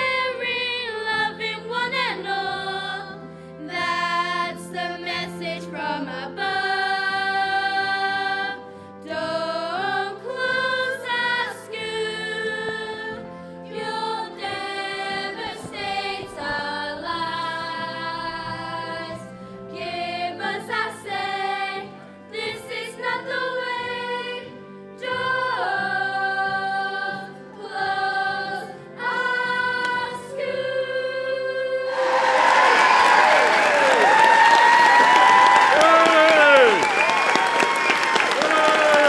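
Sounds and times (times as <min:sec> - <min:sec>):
choir singing slow song: 0:00.0 - 0:34.2
musical backing: 0:00.0 - 0:39.0
applause and cheering: 0:31.9 - 0:39.0.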